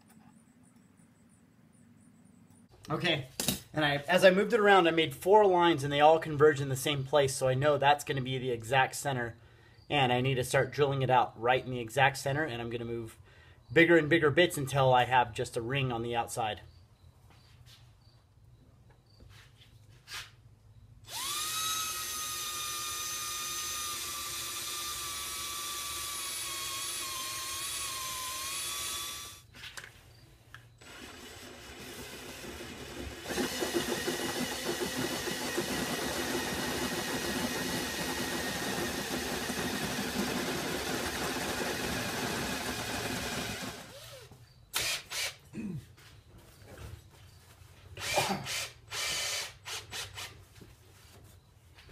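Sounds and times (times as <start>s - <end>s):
cordless drill boring into steel: 21.1s - 29.4s, 30.8s - 45.4s, 48.0s - 50.4s.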